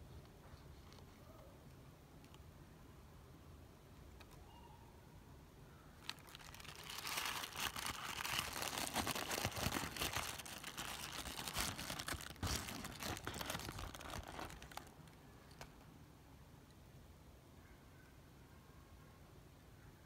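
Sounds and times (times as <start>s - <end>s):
tissue paper crinkling: 6.0s - 15.7s.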